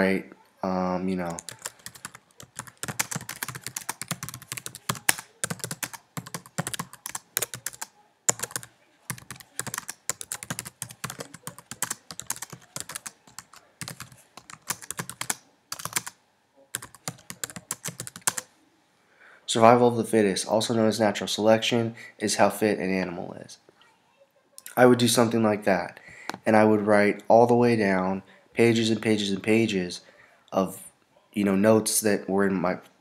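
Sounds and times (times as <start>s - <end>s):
laptop keyboard typing: 1.2s - 18.5s.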